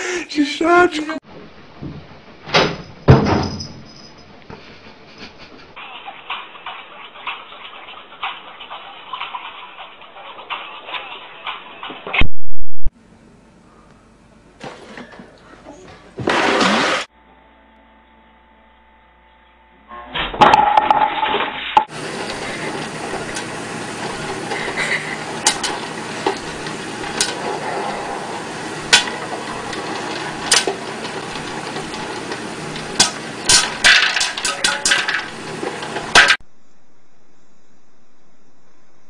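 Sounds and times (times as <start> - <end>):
popcorn popper hissing: 16.2 - 17.1, 21.9 - 36.4
popcorn popping: 21.9 - 36.4.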